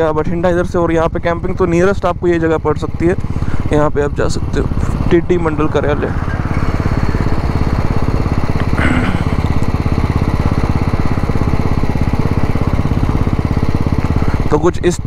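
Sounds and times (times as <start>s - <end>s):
motorcycle engine thumping: 4.2s - 14.4s.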